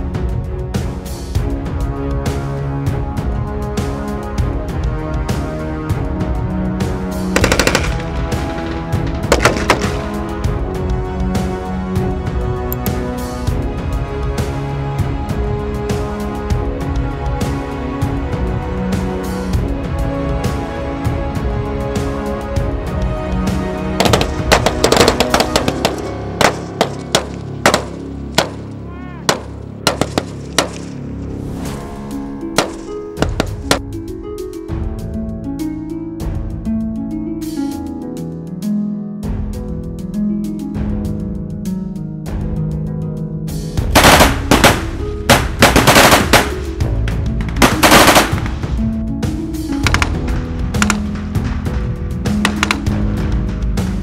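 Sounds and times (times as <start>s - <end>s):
background music: 0.0s - 54.0s
machine gun bursts: 7.4s - 8.0s, 45.6s - 46.5s
machine gun shots: 7.4s - 8.2s, 44.0s - 46.6s.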